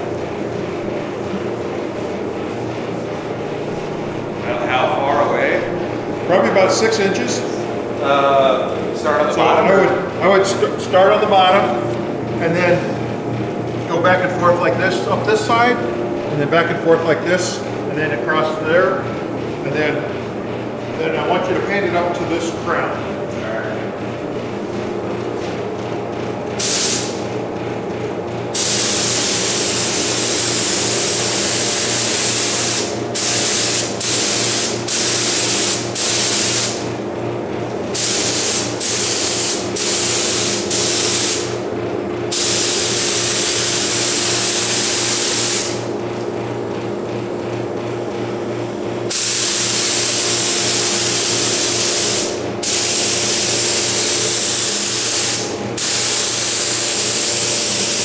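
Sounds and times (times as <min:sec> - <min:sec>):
steady low hum: 0:00.0 - 0:58.0
spray gun hissing: 0:26.6 - 0:27.2, 0:28.6 - 0:36.8, 0:38.0 - 0:41.5, 0:42.3 - 0:45.8, 0:49.1 - 0:58.0.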